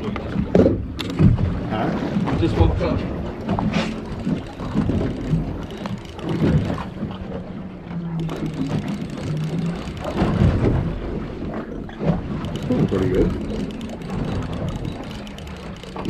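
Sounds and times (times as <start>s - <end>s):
boat motor humming: 0.0s - 16.0s
water splashing: 0.0s - 16.0s.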